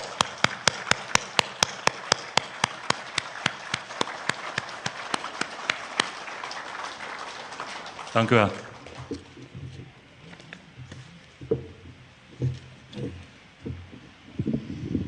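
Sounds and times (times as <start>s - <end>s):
crowd clapping in unison: 0.0s - 9.6s.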